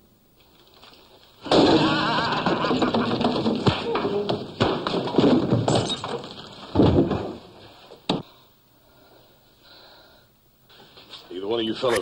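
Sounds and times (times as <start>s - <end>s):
fist fight scuffling and thuds: 3.2s - 8.2s.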